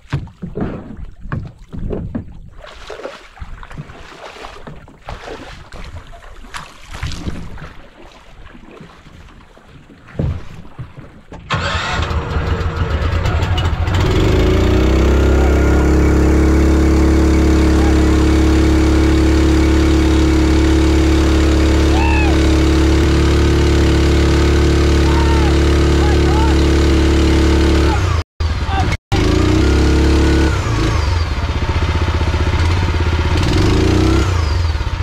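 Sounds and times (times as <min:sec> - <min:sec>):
jet kayak engine running: 0:11.5 - 0:35.0.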